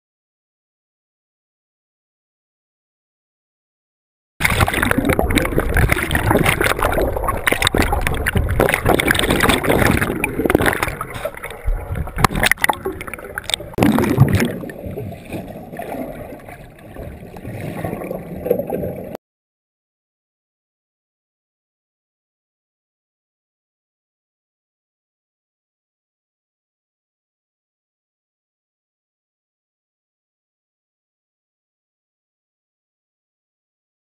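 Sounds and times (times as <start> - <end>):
underwater bubbles gurgling: 4.4 - 19.2.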